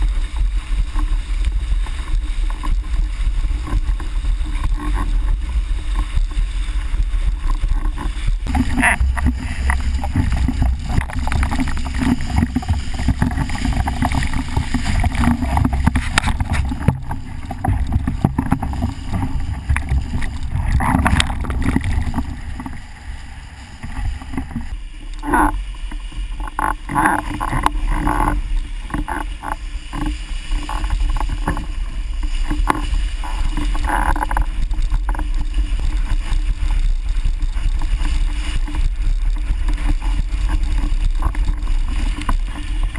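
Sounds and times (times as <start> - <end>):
choppy splashing: 0.0 - 42.9
water rushing under board: 0.0 - 42.9
wind buffeting microphone: 0.9 - 25.6.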